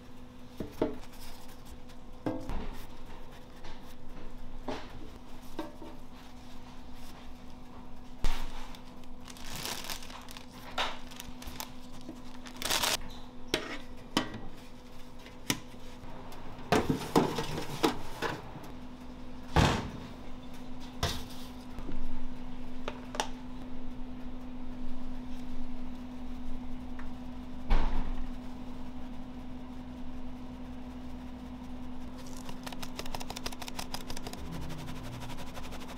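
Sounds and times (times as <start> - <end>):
steady electrical hum: 0.0 - 35.9.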